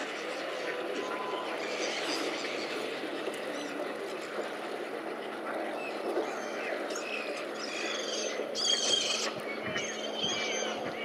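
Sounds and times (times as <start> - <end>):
background noise wash: 0.0 - 11.0
ducks and gulls calling: 0.0 - 11.0.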